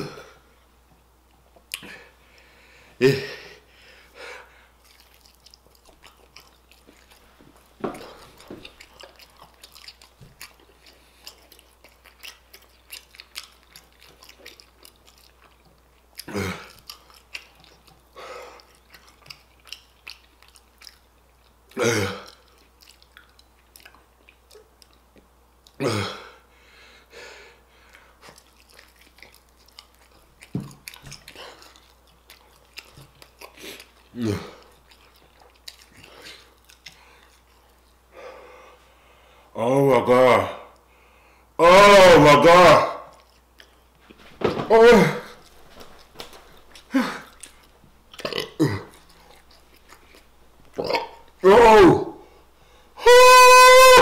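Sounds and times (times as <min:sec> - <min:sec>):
person chewing crunchy food: 0:04.0 - 0:25.8, 0:27.8 - 0:38.1, 0:43.1 - 0:53.0.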